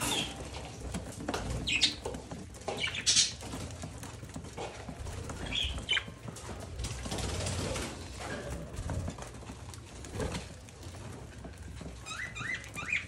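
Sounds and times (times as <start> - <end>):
rustling: 0.0 - 13.0
budgerigars chirping: 1.6 - 2.0, 2.7 - 3.4, 5.4 - 6.1, 12.0 - 13.0.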